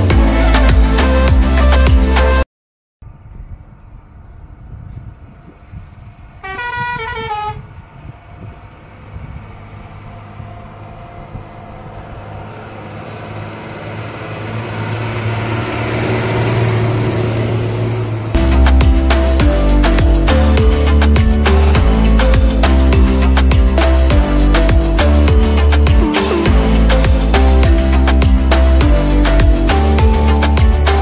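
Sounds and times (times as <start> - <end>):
truck engine running: 3.1 - 31.0
vehicle horn honk: 6.4 - 7.7.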